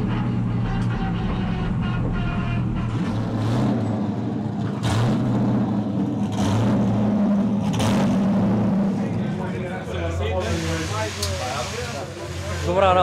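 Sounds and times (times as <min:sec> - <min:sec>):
car engine revving hard: 0:02.7 - 0:09.4.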